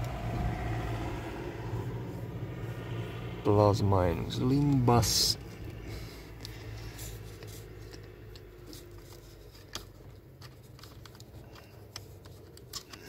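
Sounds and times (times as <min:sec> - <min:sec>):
wiring rustling: 0:04.0 - 0:13.0.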